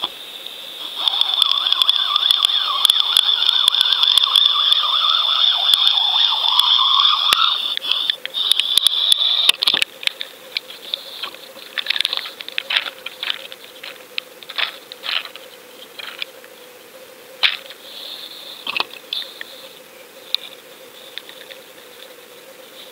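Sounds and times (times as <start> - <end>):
water dripping: 1.1 - 7.9.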